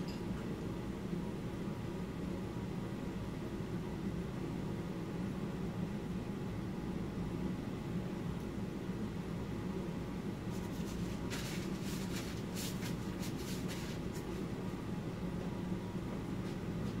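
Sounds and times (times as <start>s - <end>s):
low room hum: 0.0s - 17.0s
short scratchy rustles: 10.5s - 14.4s.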